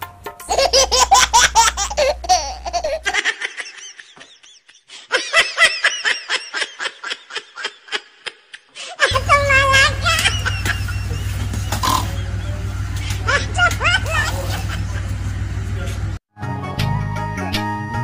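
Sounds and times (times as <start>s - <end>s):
high-pitched laughter: 0.5s - 11.8s, 13.0s - 15.1s.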